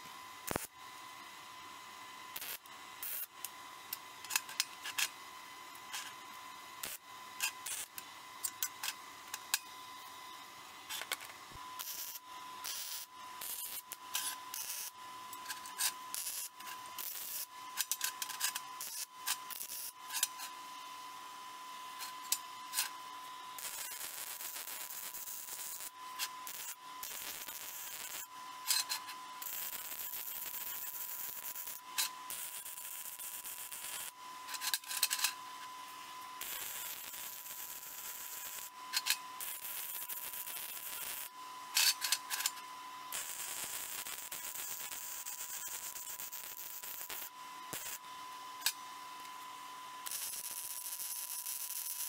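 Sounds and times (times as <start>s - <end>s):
metal clinks and scrapes: 4.2s - 5.2s, 17.8s - 18.7s, 28.7s - 29.2s, 34.5s - 35.4s, 41.8s - 42.6s.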